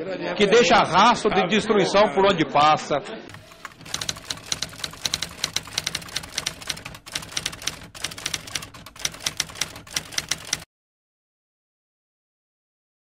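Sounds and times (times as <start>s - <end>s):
typewriter key clacks: 3.3s - 10.6s.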